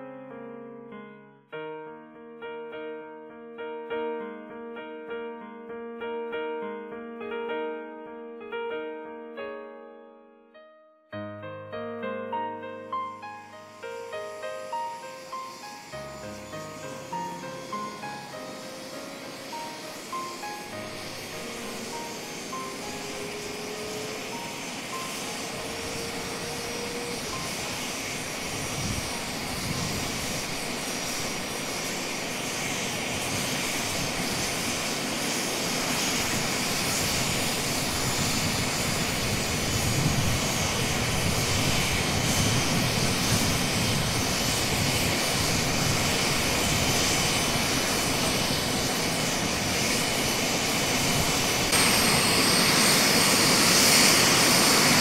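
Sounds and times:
turbine engines whining: 12.9 - 55.0.

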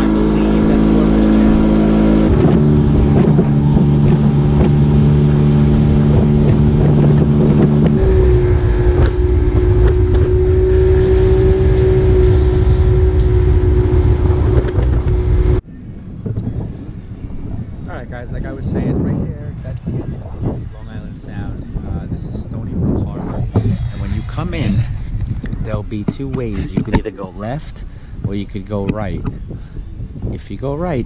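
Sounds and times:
outboard motor running: 0.0 - 30.2
wind buffeting microphone: 0.0 - 31.0
water slapping against hull: 2.3 - 10.8.

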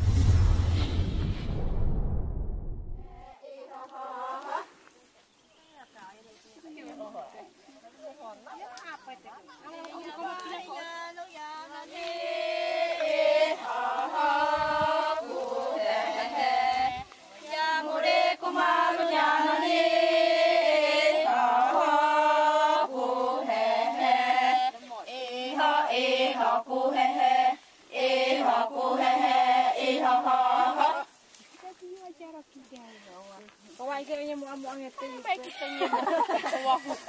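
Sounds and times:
women chanting in unison: 3.0 - 4.9, 9.5 - 31.1.

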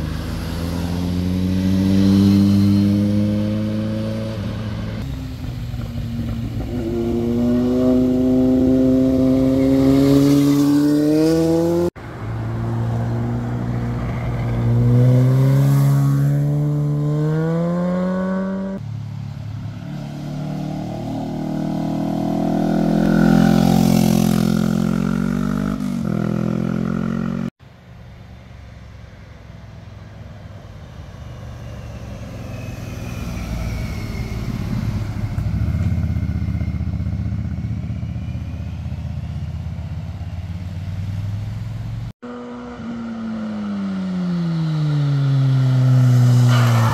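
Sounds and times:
motorcycle engines revving: 0.0 - 12.6, 13.2 - 27.6.

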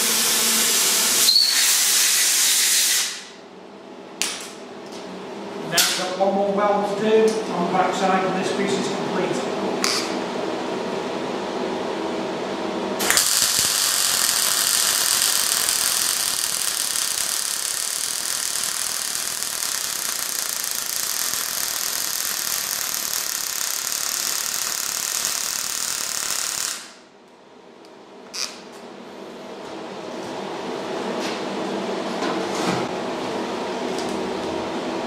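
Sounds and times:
welding arc crackling: 13.0 - 27.0.

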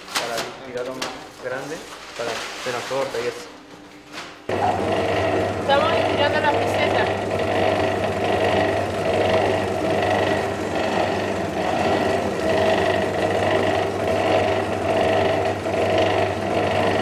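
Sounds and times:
dough sheeter motor humming: 4.4 - 17.0.

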